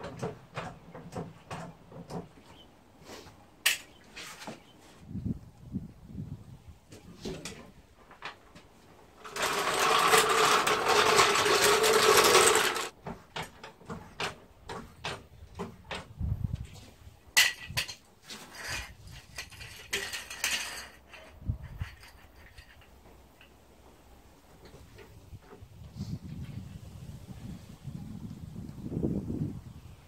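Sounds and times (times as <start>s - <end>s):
jack clicks and metal knocks: 0.0s - 2.4s, 9.2s - 16.2s
mechanical rattle: 9.2s - 12.9s.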